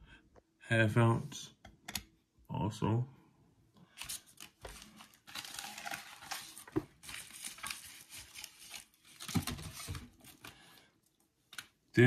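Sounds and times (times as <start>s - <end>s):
packaging crinkling: 4.0s - 10.7s.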